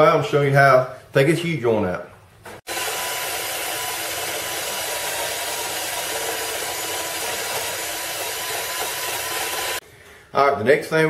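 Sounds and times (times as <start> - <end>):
power tool hissing and whining: 2.7 - 9.8.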